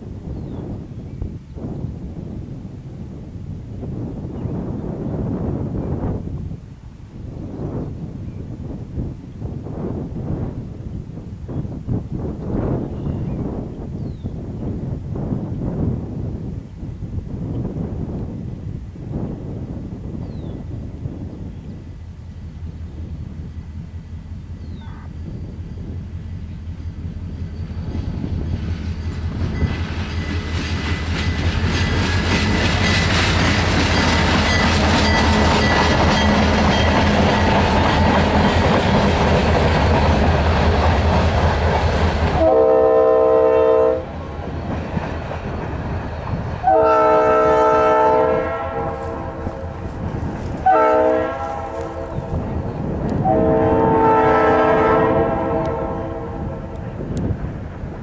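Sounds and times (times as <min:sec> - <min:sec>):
freight train rumbling past: 0:00.0 - 0:58.0
train horn: 0:42.2 - 0:44.4, 0:46.6 - 0:57.0.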